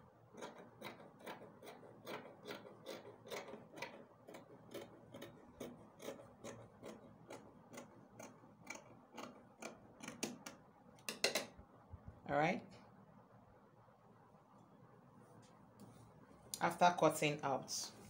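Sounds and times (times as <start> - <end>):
scissors cutting fabric: 0.4 - 10.6.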